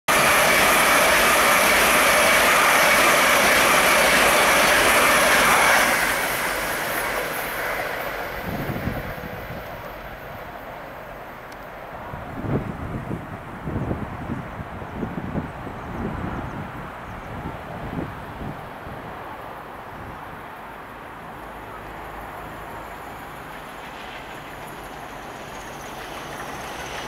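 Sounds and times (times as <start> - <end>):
wind buffeting microphone: 0.1 - 10.6, 11.9 - 20.5
distant train rumble: 0.1 - 27.0
train passing at speed: 0.1 - 27.0.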